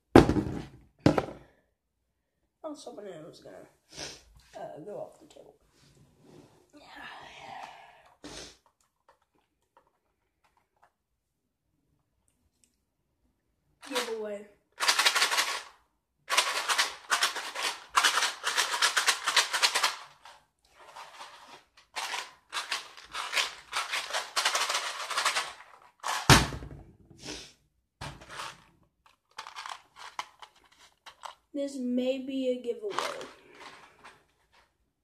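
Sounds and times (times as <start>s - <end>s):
hard bits rattling in plastic container: 14.8s - 26.3s, 28.2s - 31.5s, 32.8s - 34.3s.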